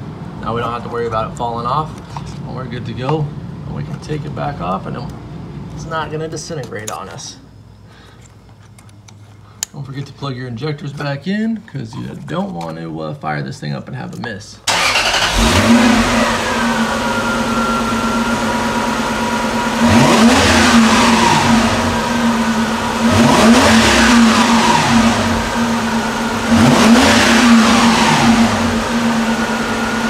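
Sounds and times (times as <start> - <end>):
car engine idling and revving: 14.7 - 30.0.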